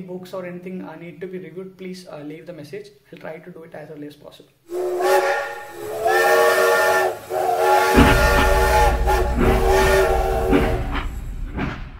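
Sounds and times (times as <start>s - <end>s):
steam locomotive whistle blasts: 4.7s - 11.4s
low train rumble: 4.7s - 11.9s.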